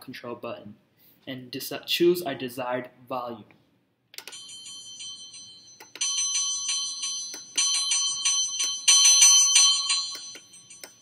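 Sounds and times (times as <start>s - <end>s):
electronic doorbell chime: 4.3s - 11.0s.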